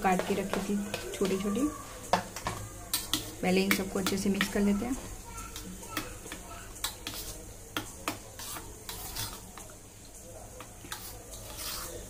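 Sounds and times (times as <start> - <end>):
spoon squelching in yogurt: 5.4 - 9.8, 10.6 - 12.0.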